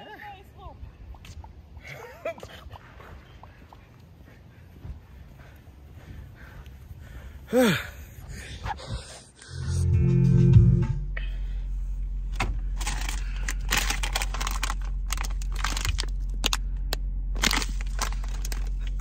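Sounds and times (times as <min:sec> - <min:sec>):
low hum inside van: 0:04.8 - 0:19.0
musical chord: 0:09.4 - 0:11.4
grocery bags rustling: 0:12.6 - 0:16.6, 0:17.4 - 0:19.0.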